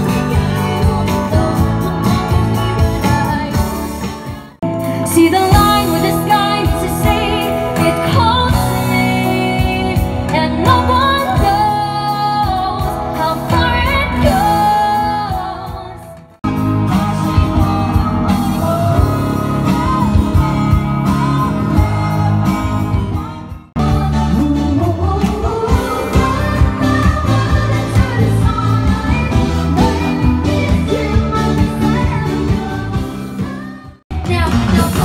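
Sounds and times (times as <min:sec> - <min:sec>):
female vocals: 0:00.0 - 0:16.2
live pop band playing: 0:00.0 - 0:35.0.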